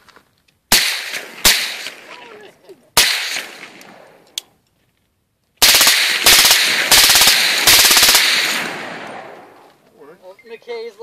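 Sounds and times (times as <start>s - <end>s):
suppressed rifle automatic bursts: 5.6s - 9.2s.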